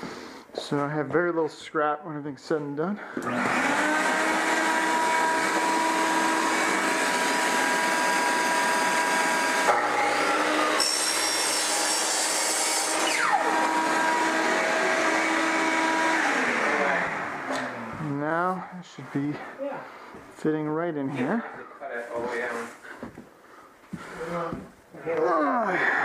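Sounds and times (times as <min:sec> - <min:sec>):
miter saw cutting plank: 0:03.2 - 0:17.9
shop vacuum running: 0:03.2 - 0:18.2.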